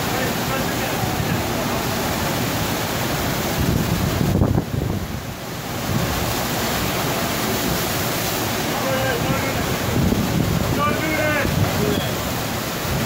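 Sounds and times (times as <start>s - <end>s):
rushing water: 0.0s - 13.0s
wind on microphone: 3.4s - 6.3s, 9.2s - 13.0s.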